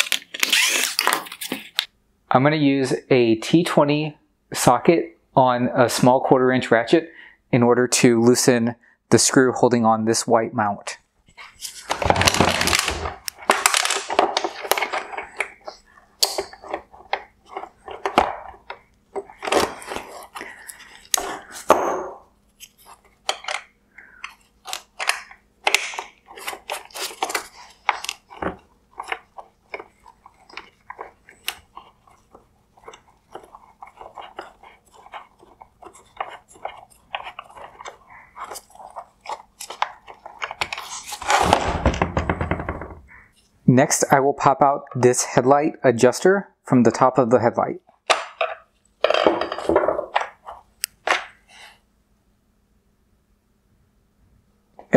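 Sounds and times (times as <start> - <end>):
hard plastic parts rattling: 11.7 - 21.7, 22.9 - 43.2.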